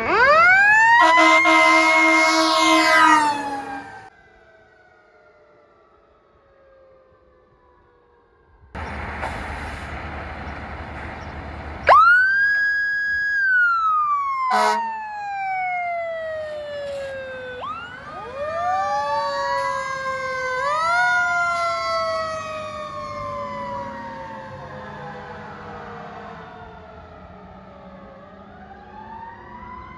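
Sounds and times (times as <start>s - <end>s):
siren wailing: 0.0s - 8.6s, 11.8s - 29.9s
fire truck engine rumbling: 0.0s - 29.9s
sharp horn blast: 1.0s - 3.2s, 14.5s - 14.9s.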